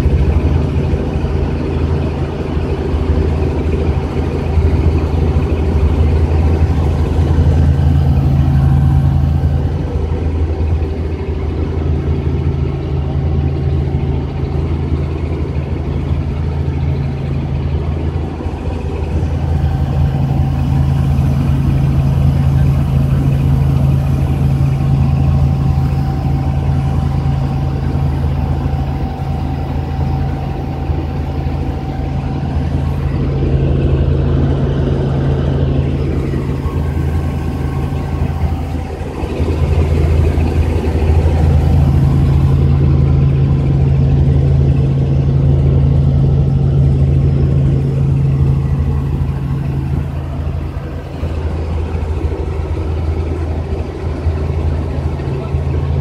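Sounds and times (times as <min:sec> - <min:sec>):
helicopter rotor and engine drone: 0:00.0 - 0:56.0
thin steady whine: 0:00.0 - 0:56.0.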